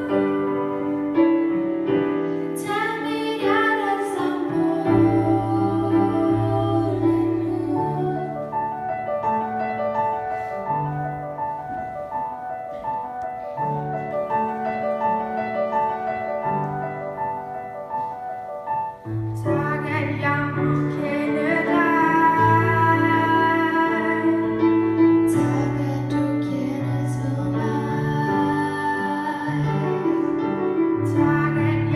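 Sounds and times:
piano playing broken chords: 0:00.0 - 0:31.9
girls singing: 0:02.6 - 0:08.5.

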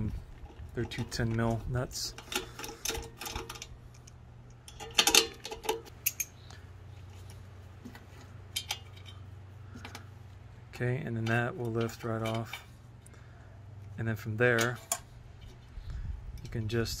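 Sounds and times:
metal clinks of nuts and tool: 0:02.1 - 0:06.4.

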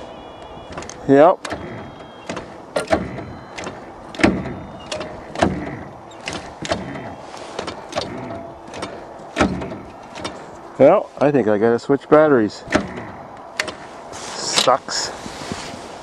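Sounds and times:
metallic clicks and knocks: 0:00.7 - 0:10.6, 0:12.7 - 0:13.8.

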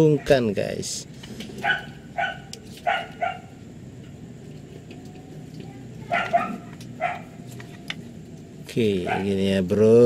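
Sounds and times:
dog barking in short yaps: 0:01.6 - 0:03.5.

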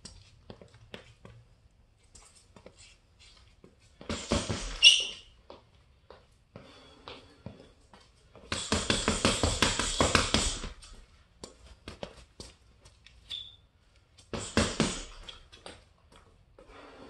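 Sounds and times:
gloves punching heavy bag: 0:04.0 - 0:04.8, 0:08.4 - 0:11.0, 0:14.3 - 0:15.4
brief high squeak: 0:04.8 - 0:05.3, 0:13.3 - 0:13.6.

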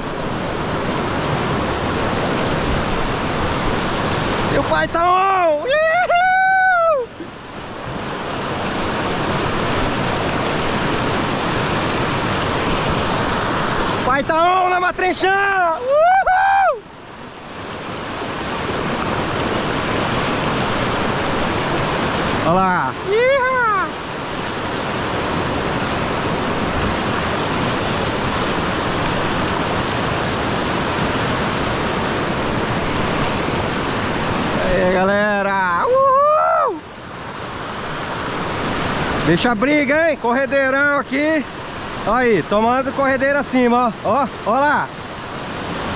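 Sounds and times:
whitewater rapids rushing: 0:00.0 - 0:45.9
person shouting: 0:05.1 - 0:07.1, 0:15.6 - 0:16.8, 0:23.0 - 0:24.0, 0:35.8 - 0:36.8.

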